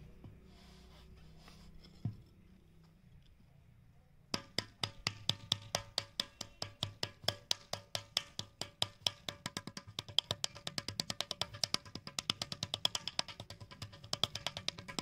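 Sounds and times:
paddle knocking clay pot: 4.3 - 15.0.

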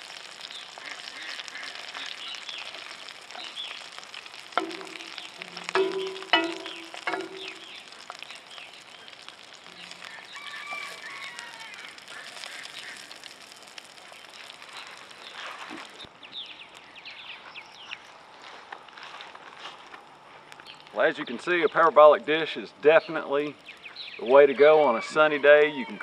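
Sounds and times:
sausages sizzling in a frying pan: 0.0 - 19.2, 19.9 - 26.0
bird calls: 0.4 - 4.0, 4.6 - 13.2, 23.0 - 26.0.

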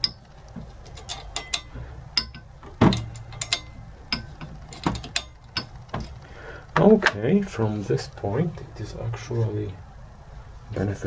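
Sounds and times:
metallic clicks and ticks: 0.0 - 6.3
nut turning on threaded rod: 0.0 - 6.9
metal knock: 1.0 - 6.2.

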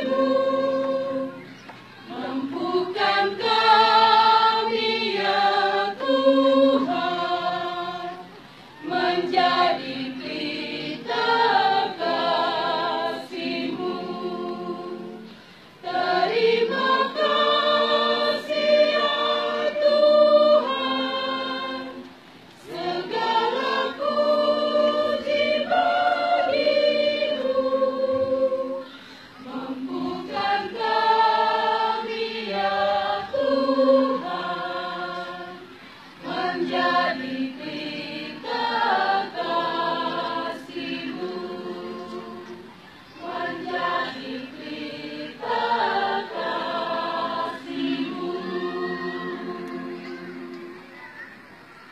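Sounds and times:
choir singing a hymn: 0.0 - 51.5.

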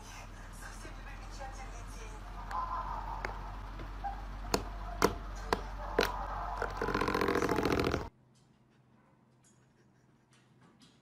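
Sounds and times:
electric fan humming: 0.0 - 8.1.

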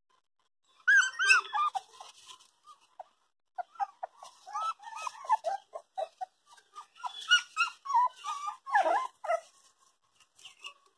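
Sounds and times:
puppies whimpering and squealing: 0.7 - 2.3, 3.6 - 9.7.

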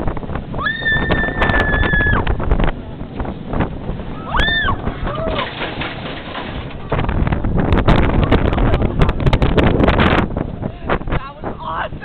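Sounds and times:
roller coaster clicks and rattles: 0.0 - 11.6
roller coaster wind and rumble: 0.0 - 12.0
rider whooping: 0.6 - 2.4, 4.1 - 5.6.

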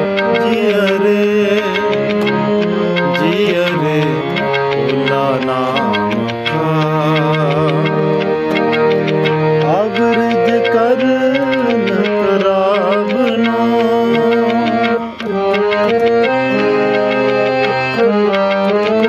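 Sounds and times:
harmonium: 0.0 - 19.0
person singing: 0.0 - 19.0
tabla beat: 0.0 - 19.0.

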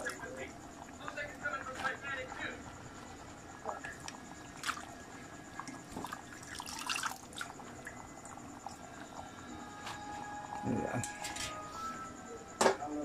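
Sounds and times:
sauce bubbling in a pan: 2.3 - 9.2.

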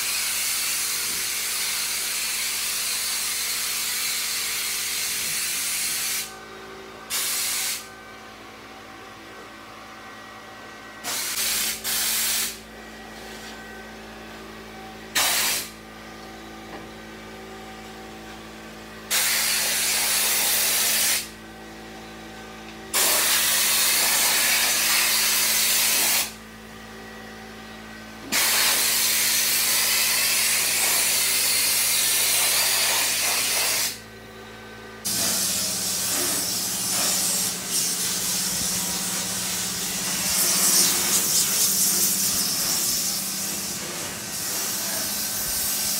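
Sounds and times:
spray gun hissing: 5.6 - 6.3, 7.1 - 7.9, 11.0 - 12.6, 15.2 - 15.7, 19.1 - 21.3, 35.1 - 43.7, 44.3 - 45.9
steady low hum: 34.0 - 45.9.

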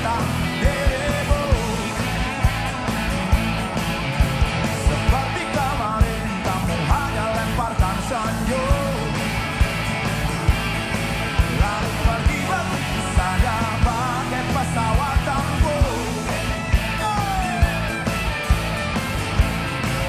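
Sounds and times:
man singing: 0.0 - 2.9, 4.7 - 9.4, 11.3 - 18.1
electric and acoustic guitars: 0.0 - 20.0.

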